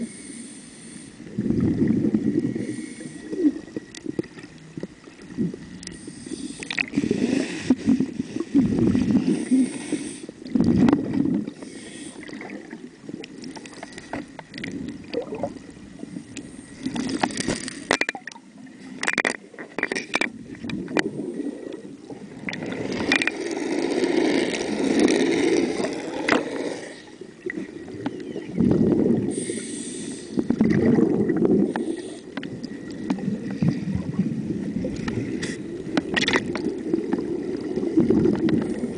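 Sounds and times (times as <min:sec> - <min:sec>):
diver breathing through regulator: 0:00.0 - 0:01.5, 0:02.4 - 0:03.7, 0:05.9 - 0:10.4, 0:11.5 - 0:12.5, 0:29.2 - 0:30.8, 0:31.6 - 0:32.5
bubbling exhale underwater: 0:15.0 - 0:15.6, 0:30.4 - 0:32.1.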